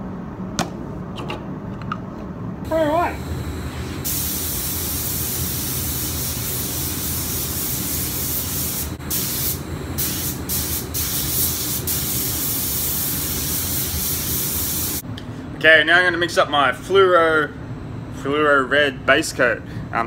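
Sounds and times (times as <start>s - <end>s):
steady low hum: 0.0s - 20.0s
spray gun hissing: 3.8s - 15.0s.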